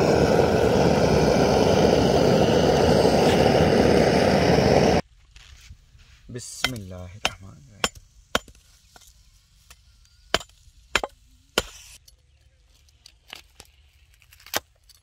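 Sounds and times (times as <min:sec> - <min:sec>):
gas torch flame hissing: 0:00.0 - 0:05.0.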